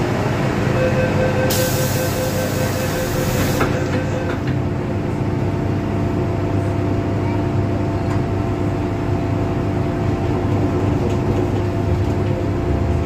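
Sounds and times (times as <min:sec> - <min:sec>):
steady train hum: 0:00.0 - 0:13.0
door closing warning beeps: 0:00.9 - 0:04.4
train doors shutting with a thud: 0:01.5 - 0:04.7.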